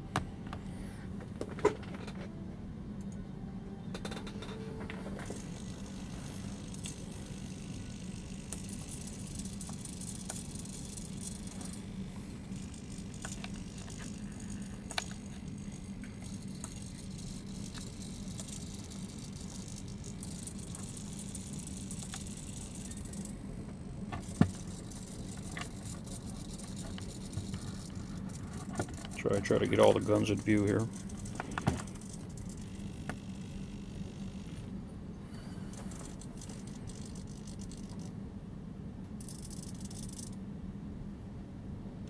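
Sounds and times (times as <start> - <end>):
servos whirring: 4.9 - 34.8, 35.6 - 38.1, 39.2 - 40.4.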